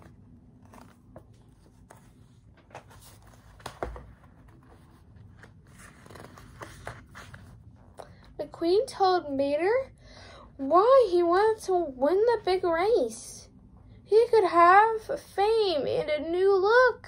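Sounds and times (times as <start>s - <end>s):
paper pages rustling: 0.0s - 8.0s.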